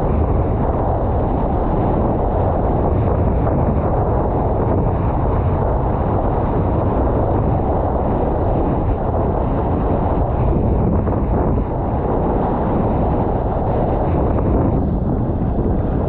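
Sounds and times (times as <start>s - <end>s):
strong wind buffeting microphone: 0.0s - 16.0s.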